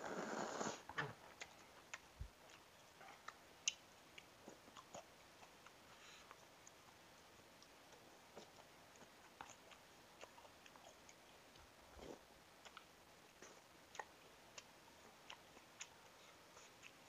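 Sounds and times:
faint chewing noodles: 0.0 - 17.0.

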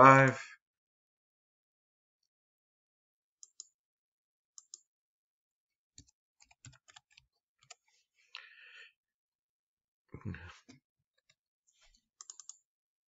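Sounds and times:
computer mouse clicks: 3.4 - 3.7, 4.6 - 4.9, 12.2 - 12.6.

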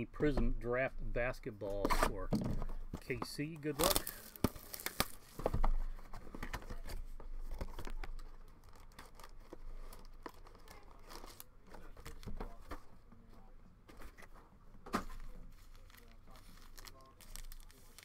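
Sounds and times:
foil wrappers tearing and crinkling: 3.7 - 5.4, 15.5 - 18.0.

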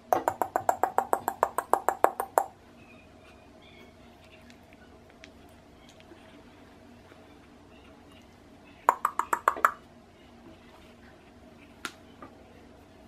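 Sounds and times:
sharp clicks: 8.9 - 9.8.

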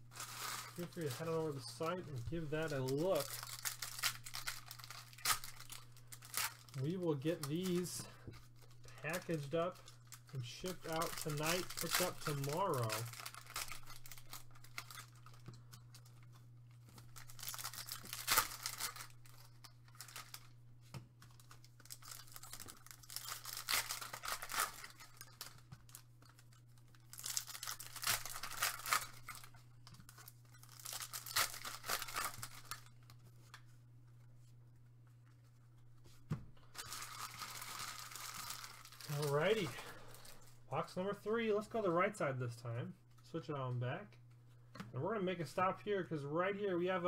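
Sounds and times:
foil wrappers tearing and crinkling: 0.0 - 20.6, 21.2 - 33.6, 36.7 - 40.5.

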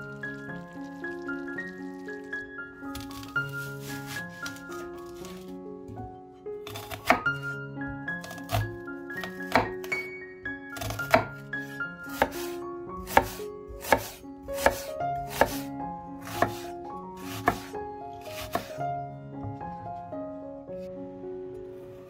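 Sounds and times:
background music with held notes: 0.0 - 22.0
knife chopping on cutting board: 6.7 - 7.3, 8.2 - 9.8, 10.8 - 18.8.

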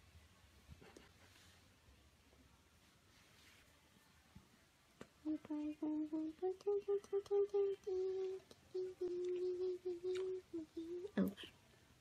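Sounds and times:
person humming a tune: 5.2 - 11.5.

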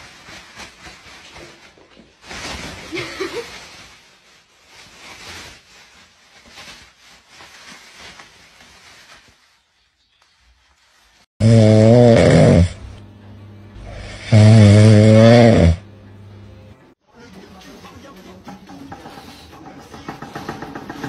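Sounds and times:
plastic bag rustling and crinkling: 0.0 - 11.3.

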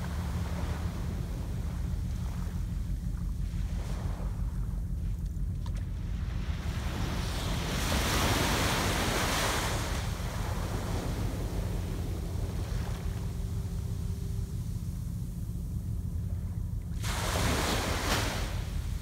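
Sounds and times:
wind rumble on microphone: 0.0 - 19.0
waves lapping on sand: 6.4 - 14.0, 17.0 - 19.0.

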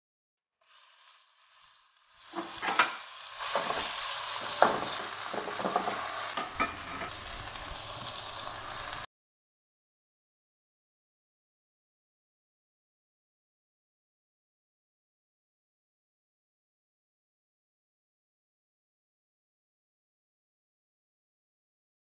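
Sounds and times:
meat sizzling in hot fat: 0.6 - 9.1
metal spatula scraping pan: 2.2 - 9.0.

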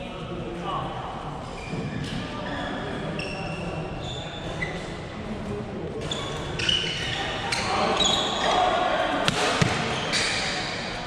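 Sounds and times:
murmur of voices: 0.0 - 11.0
shoes squeaking on court floor: 1.5 - 5.2, 5.9 - 11.0
racket hitting shuttlecock: 9.2 - 10.0.

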